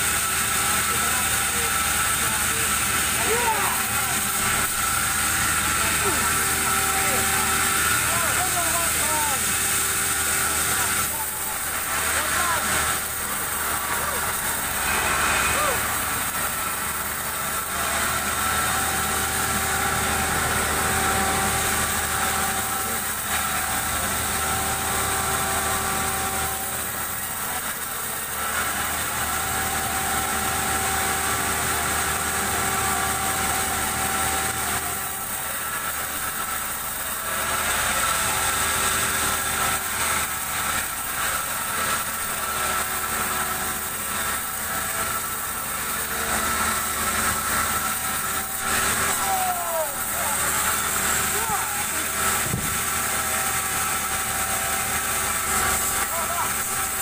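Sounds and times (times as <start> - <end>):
machine whining tones: 0.0 - 27.2
saw motor humming: 0.0 - 57.0.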